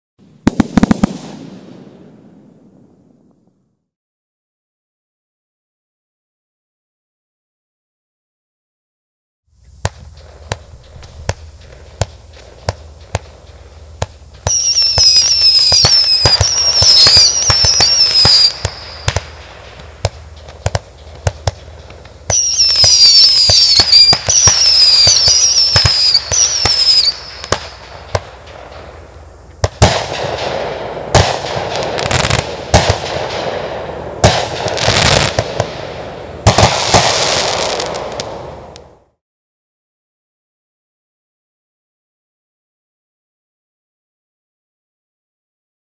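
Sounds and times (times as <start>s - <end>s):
fireworks crackling and banging: 0.2s - 3.3s, 9.7s - 39.1s
firework launch thumps: 0.4s - 2.1s
high wavering firework whistles: 0.4s - 3.3s, 9.6s - 39.2s.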